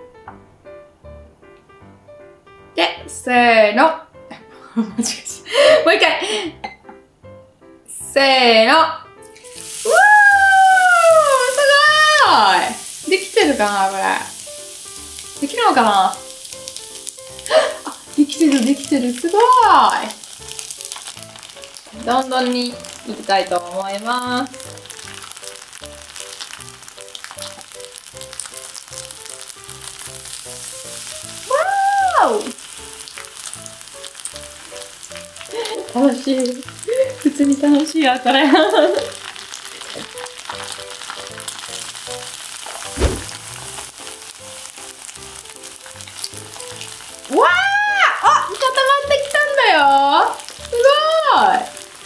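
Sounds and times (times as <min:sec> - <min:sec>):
noodles deep-frying in oil: 0:08.8 - 0:52.0
low thump: 0:43.0 - 0:43.4.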